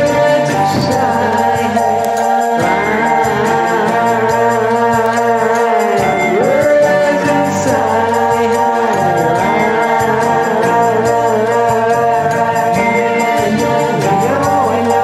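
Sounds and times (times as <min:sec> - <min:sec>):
held chords: 0:00.0 - 0:15.0.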